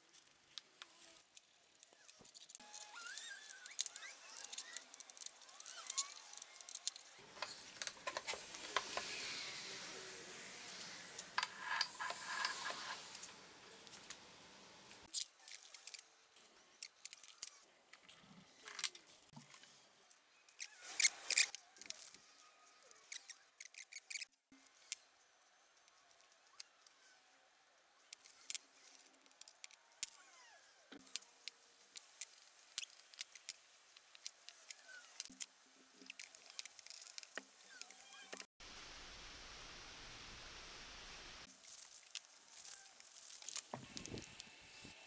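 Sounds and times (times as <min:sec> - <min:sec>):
plastic bags crinkling: 0:41.5 - 0:44.2.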